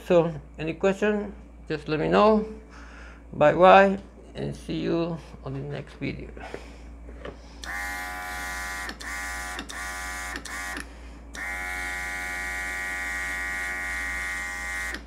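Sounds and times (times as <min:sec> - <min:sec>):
airbrush compressor whine: 0:07.4 - 0:15.0.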